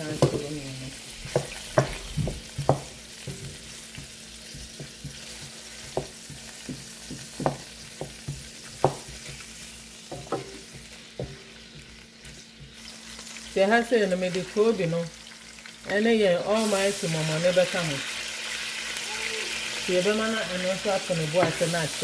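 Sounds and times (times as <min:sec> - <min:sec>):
onions sizzling in hot oil: 0:00.0 - 0:22.0
wooden spatula knocking pan: 0:01.3 - 0:09.4, 0:10.1 - 0:11.9.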